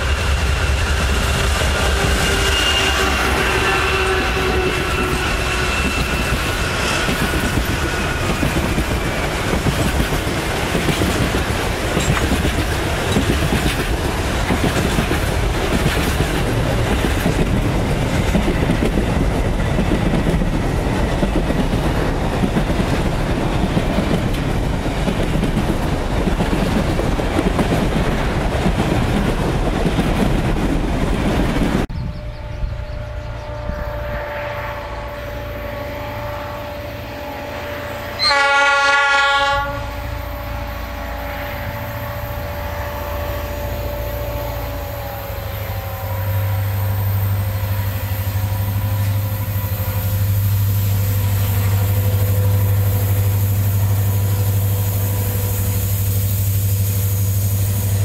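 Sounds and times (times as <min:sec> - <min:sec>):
high wheel squeal: 0:00.0 - 0:09.6
distant diesel locomotive hum: 0:00.0 - 0:58.0
freight wagon wheels clickety-clack: 0:04.0 - 0:31.9.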